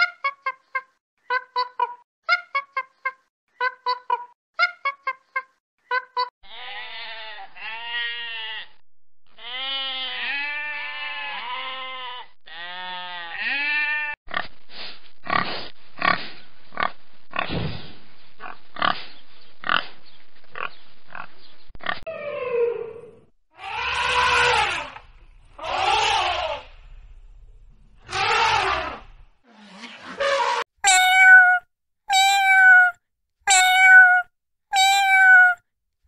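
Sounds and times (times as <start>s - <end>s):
sheep bleating: 6.4s - 14.2s
pigs grunting: 15.2s - 17.6s, 18.4s - 19.0s
elephant trumpeting: 28.1s - 29.0s.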